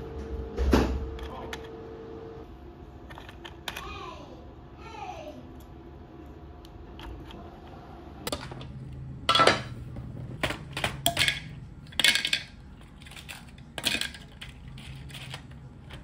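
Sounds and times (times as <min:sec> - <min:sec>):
eggshells clattering into plastic bowl: 0:10.4 - 0:16.0.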